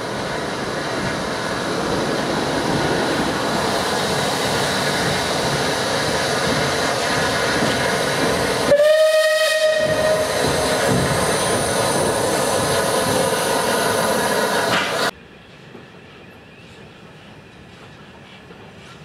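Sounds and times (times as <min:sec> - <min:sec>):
steam locomotive wheels running: 0:00.0 - 0:19.0
steam locomotive whistle: 0:08.7 - 0:10.7.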